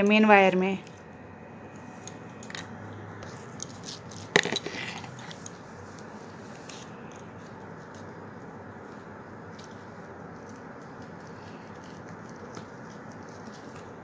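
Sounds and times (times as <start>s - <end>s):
wire twisting ticks and rustles: 3.2s - 8.2s, 8.8s - 14.0s.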